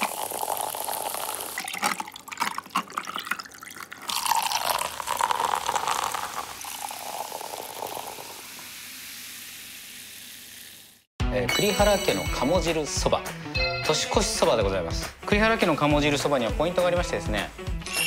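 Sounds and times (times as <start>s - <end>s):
crackling fizz: 0.0s - 11.1s
sparkling water pouring into glass: 0.0s - 11.1s.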